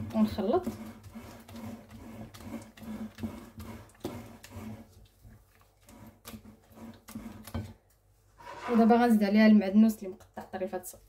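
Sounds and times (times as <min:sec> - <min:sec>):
spatula scraping glass bowl: 0:00.0 - 0:07.8, 0:08.4 - 0:09.3.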